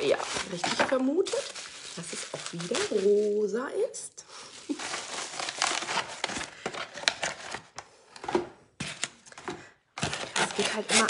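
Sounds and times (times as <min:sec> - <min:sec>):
bubble wrap and paper crinkling: 0:00.0 - 0:07.8, 0:10.0 - 0:11.0.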